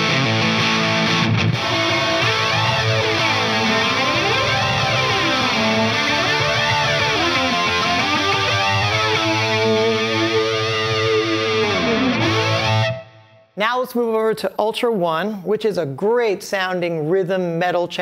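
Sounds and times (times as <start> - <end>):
overdriven electric guitar: 0.0 - 13.6.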